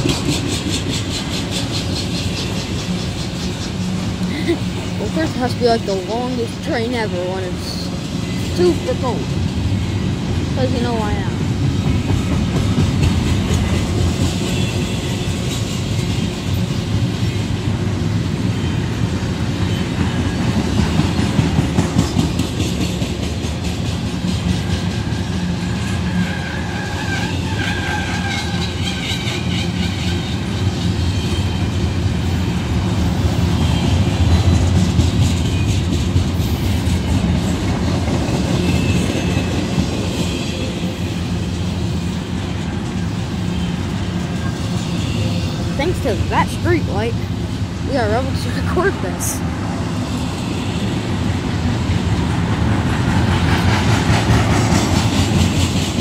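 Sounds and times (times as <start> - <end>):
wheels clacking over rail joints: 0.0 - 4.2, 11.4 - 47.2, 52.0 - 56.0
steel wheels rumbling on rail: 0.0 - 56.0.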